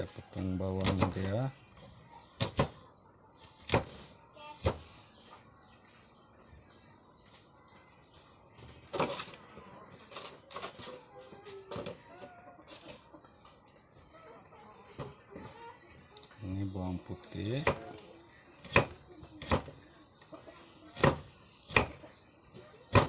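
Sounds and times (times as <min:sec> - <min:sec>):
cleaver chopping on stone: 0:18.6 - 0:19.7, 0:21.0 - 0:22.0.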